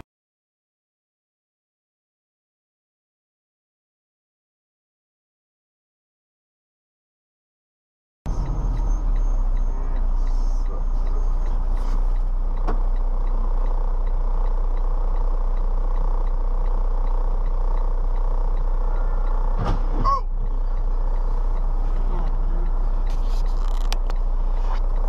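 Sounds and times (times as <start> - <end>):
street traffic rumble: 8.3 - 25.0.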